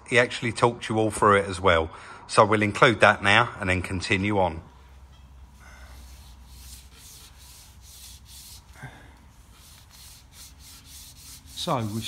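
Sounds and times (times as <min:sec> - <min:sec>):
sandpaper rasping on metal: 0:05.2 - 0:12.0.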